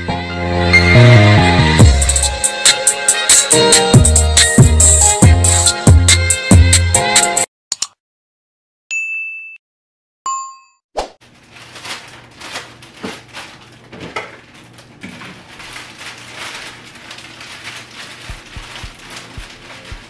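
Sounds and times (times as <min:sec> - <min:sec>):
rustling: 0:14.6 - 0:20.0.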